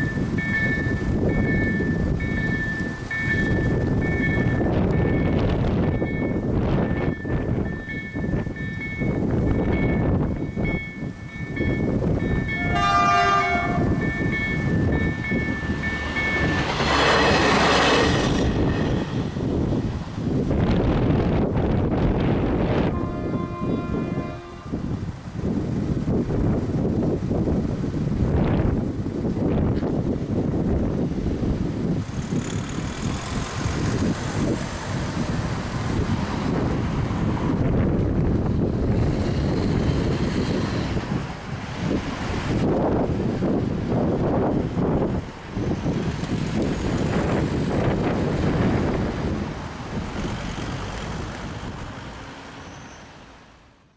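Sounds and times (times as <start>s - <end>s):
level crossing warning bells: 0.0s - 17.8s
cars passing: 0.0s - 25.1s, 31.6s - 53.9s
rushing noise with faint tone: 0.0s - 53.9s
train horn: 12.6s - 14.0s, 22.8s - 24.9s.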